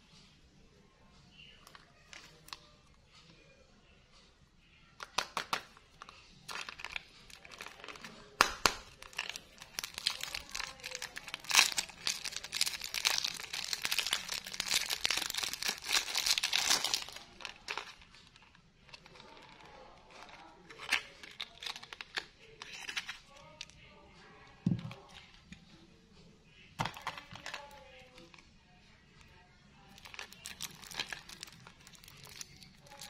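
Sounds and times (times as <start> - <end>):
cellophane wrapper crinkling: 6.5 - 23.7, 29.9 - 33.0.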